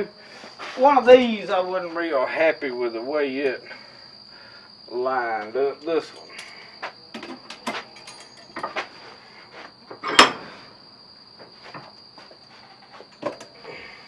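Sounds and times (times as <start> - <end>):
ringing metallic clank: 7.5 - 8.8, 10.0 - 10.6.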